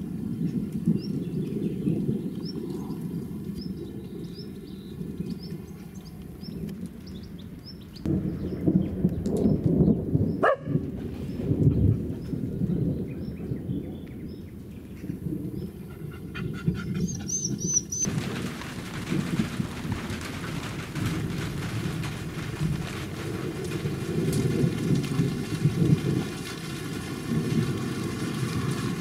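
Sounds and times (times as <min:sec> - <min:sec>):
low rolling thunder: 0:00.0 - 0:29.0
wind and rain hiss: 0:00.0 - 0:29.0
small birds chirping: 0:00.3 - 0:09.6, 0:16.4 - 0:18.1
bird trill: 0:17.1 - 0:18.1.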